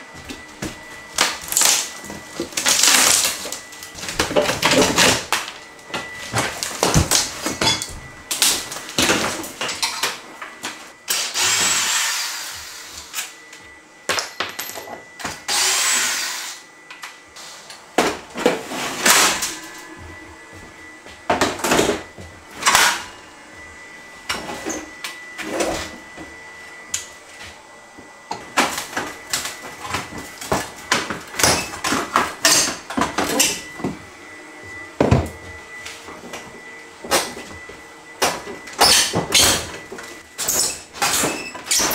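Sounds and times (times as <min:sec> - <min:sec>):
cordless drill running: 0:11.1 - 0:13.4, 0:15.5 - 0:16.6.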